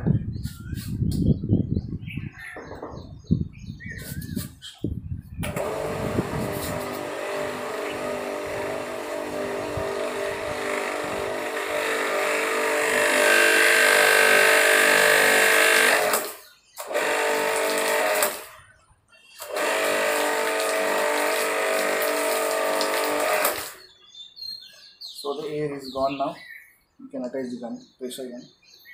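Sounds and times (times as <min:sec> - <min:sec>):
pressure washer motor and pump: 0:05.4 - 0:18.6, 0:19.4 - 0:23.8
water sputtering and jetting: 0:19.5 - 0:23.8.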